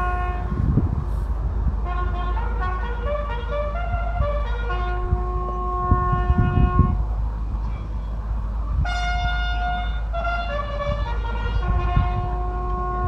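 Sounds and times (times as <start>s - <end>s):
bugle call: 0.0s - 0.5s, 1.9s - 7.0s, 8.8s - 13.0s
low rumble: 0.0s - 13.0s.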